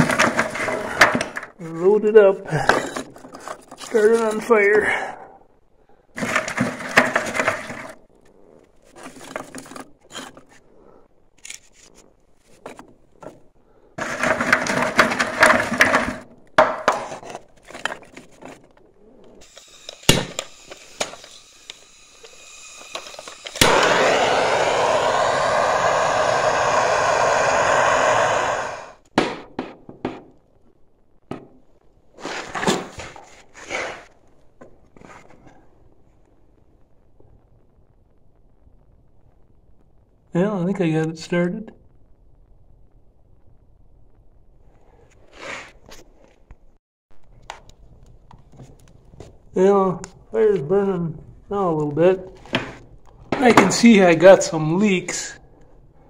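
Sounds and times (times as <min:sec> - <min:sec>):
wood scraping cracking and knocking: 0:00.0 - 0:01.5, 0:08.6 - 0:10.6, 0:11.5 - 0:18.8, 0:32.2 - 0:35.5
loud steady hiss: 0:19.4 - 0:29.0.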